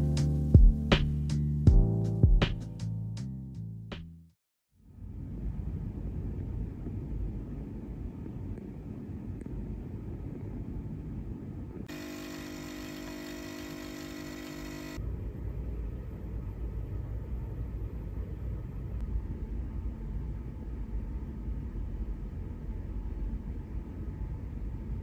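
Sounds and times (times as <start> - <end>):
low rumbling background noise: 4.8 - 11.9, 15.0 - 25.0
multi-tone hum: 11.9 - 21.2.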